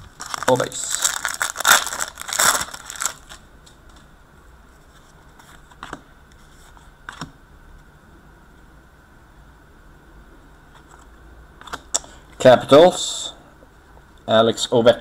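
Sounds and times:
foil wrapper crinkling and tearing: 0:00.0 - 0:03.4.

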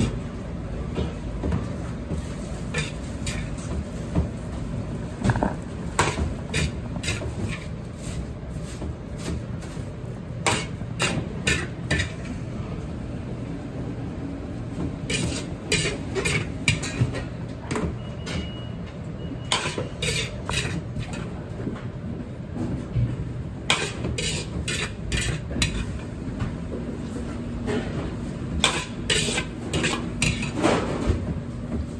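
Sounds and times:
steady low rumble: 0:04.4 - 0:08.3.

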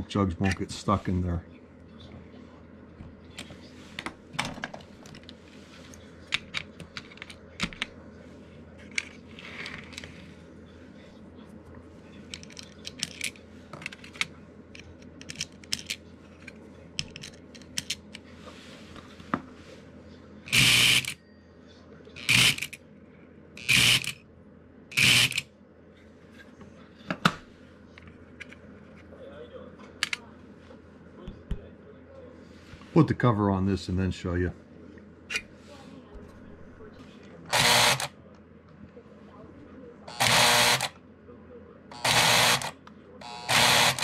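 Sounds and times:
small metal parts clicking: 0:12.3 - 0:14.2
solenoid buzzing: 0:20.5 - 0:21.2, 0:22.2 - 0:22.8, 0:23.6 - 0:24.2, 0:24.9 - 0:25.4, 0:37.5 - 0:38.1, 0:40.1 - 0:41.0, 0:41.9 - 0:44.0.

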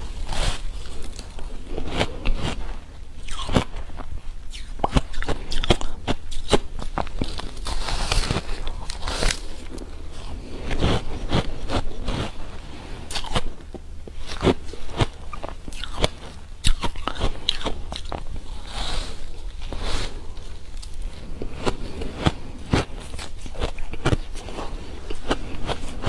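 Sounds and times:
crunching ice: 0:04.6 - 0:09.8, 0:14.2 - 0:18.5.

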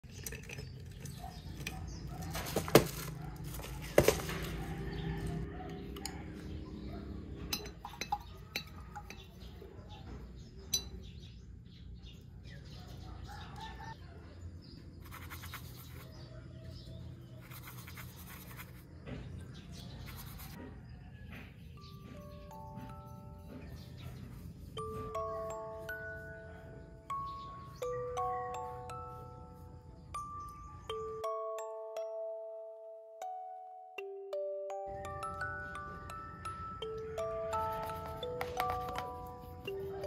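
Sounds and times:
brushes clinking on glass jars: 0:00.0 - 0:05.0, 0:07.3 - 0:11.3, 0:21.8 - 0:31.6, 0:34.9 - 0:40.0
music box tune: 0:21.8 - 0:40.0.

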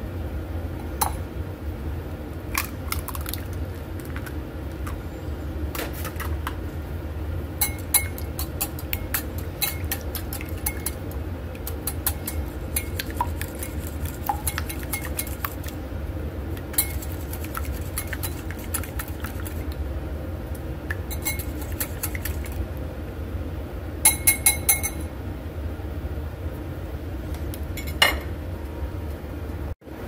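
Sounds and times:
whisk clinking against bowl: 0:07.6 - 0:15.8, 0:16.7 - 0:19.7, 0:20.9 - 0:22.6, 0:24.0 - 0:25.1.

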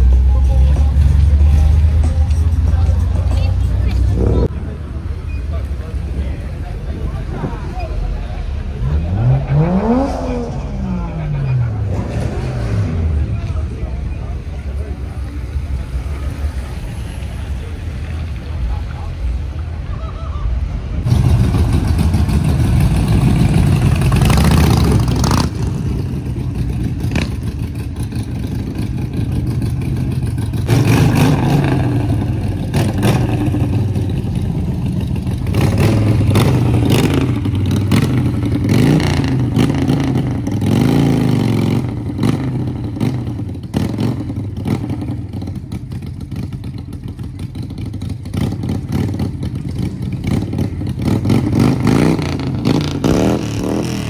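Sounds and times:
car engines revving: 0:00.0 - 0:19.9, 0:20.5 - 0:54.0.

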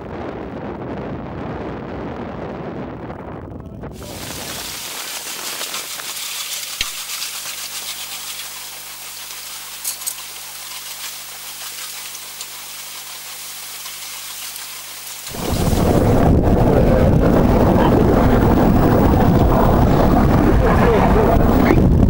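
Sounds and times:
wind buffeting microphone: 0:00.0 - 0:06.1, 0:15.3 - 0:22.0
wind and water rushing hiss: 0:03.9 - 0:22.0.

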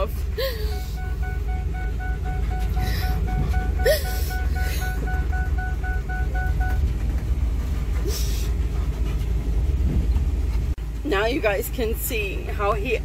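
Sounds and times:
van engine and road rumble: 0:00.0 - 0:13.0
electronic warning chime beeping: 0:00.8 - 0:06.8.

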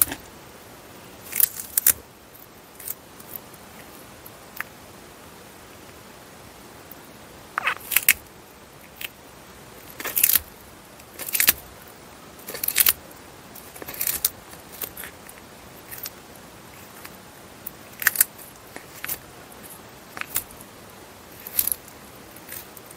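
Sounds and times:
tortoise crunching leafy greens: 0:01.2 - 0:04.8, 0:06.9 - 0:11.8, 0:12.4 - 0:22.9.

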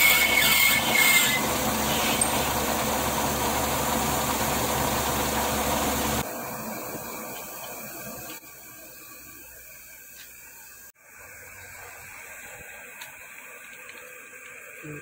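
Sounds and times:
workshop background hiss: 0:04.8 - 0:15.0.

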